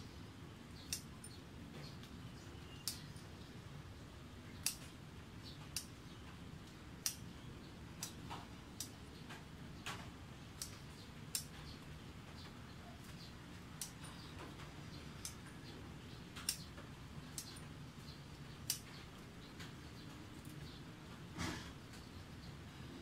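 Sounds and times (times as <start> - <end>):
faint background noise: 0.0 - 23.0
scissors snipping stems: 0.8 - 3.3, 4.6 - 6.0, 6.7 - 17.6, 18.4 - 20.8.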